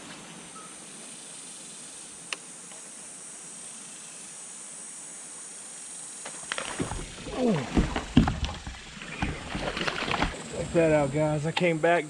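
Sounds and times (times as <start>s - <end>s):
high-pitched insect drone: 0.4s - 7.1s.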